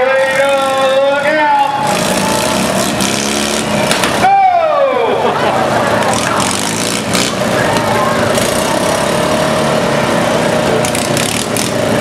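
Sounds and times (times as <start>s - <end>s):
crowd voices: 0.0s - 12.0s
riding lawn mower engines: 0.0s - 12.0s.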